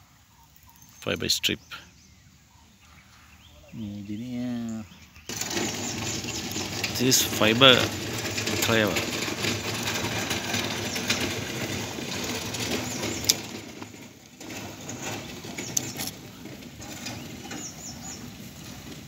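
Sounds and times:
bird chirps: 0.2s - 6.6s.

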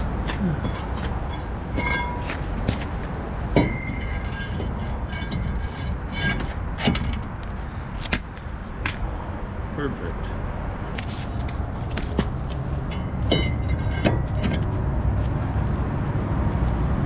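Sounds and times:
metal brake rotor clanking: 0.0s - 8.0s, 12.0s - 15.0s
steady low rumble: 0.0s - 17.0s.

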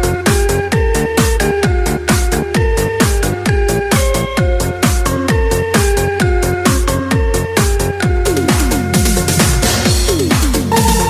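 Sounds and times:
kick drum: 0.0s - 11.0s
electronic dance music: 10.4s - 11.0s
held synth line: 10.7s - 11.0s.

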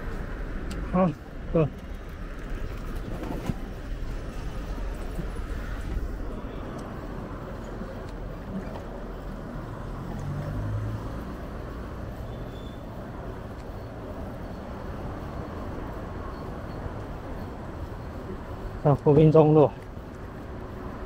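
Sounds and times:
low vehicle engine passing: 0.0s - 13.4s
passing cars and buses: 0.0s - 21.0s.

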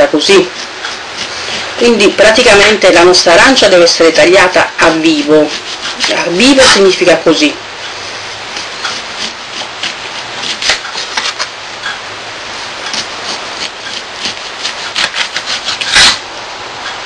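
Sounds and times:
steady hiss: 0.0s - 17.0s
knife slicing orange peel: 8.5s - 11.5s, 12.8s - 16.2s.

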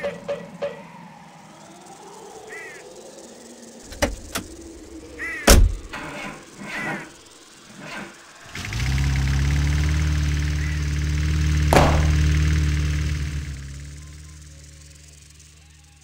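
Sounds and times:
sharp clicks and knocks: 3.9s - 4.5s
heavy thump: 11.7s - 12.5s.

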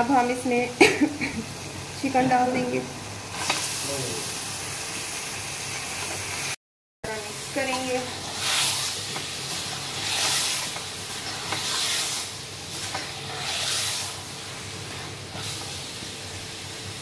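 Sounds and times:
chicken sizzling in hot oil: 0.0s - 17.0s
metal spatula stirring in pot: 7.6s - 15.7s.

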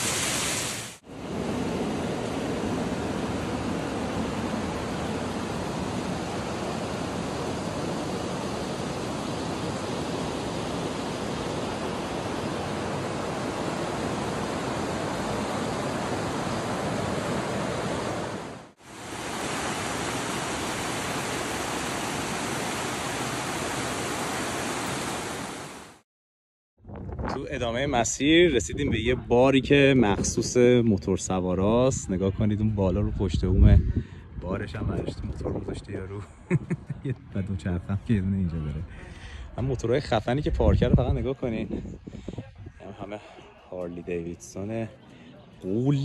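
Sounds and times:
fast-flowing river rushing: 1.1s - 26.0s.

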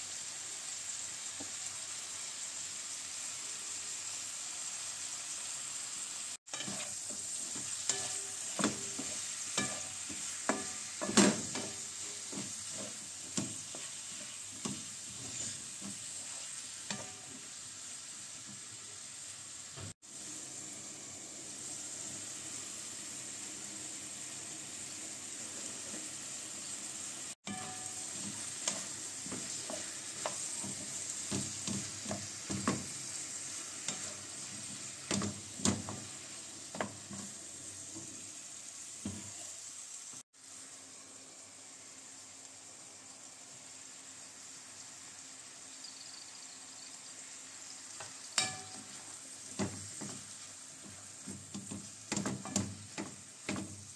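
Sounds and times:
sausages sizzling in a frying pan: 0.0s - 53.9s
wooden spatula scraping a pan: 6.5s - 17.4s, 27.4s - 37.4s.

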